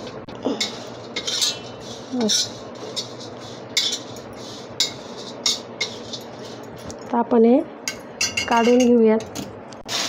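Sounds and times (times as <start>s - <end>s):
metal spatula scraping iron pan: 0.6s - 6.7s.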